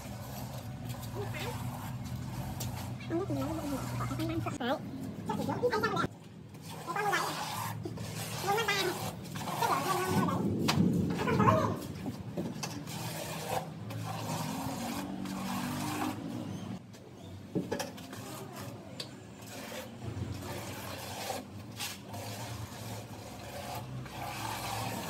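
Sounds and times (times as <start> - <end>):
trowel scraping wet mortar: 0.0 - 4.6, 5.4 - 16.8, 17.8 - 25.0.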